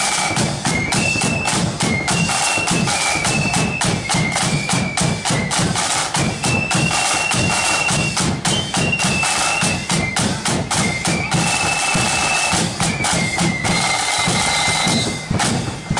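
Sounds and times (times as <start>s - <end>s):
rapid snare drum strokes: 0.0s - 15.9s
shrill flutes playing: 0.0s - 15.9s
bass drum beats: 12.5s - 15.9s.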